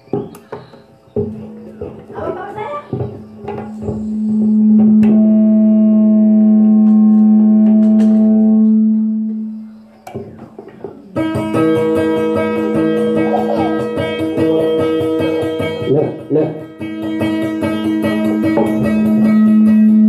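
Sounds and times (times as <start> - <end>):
held low guitar note: 3.6 - 9.7.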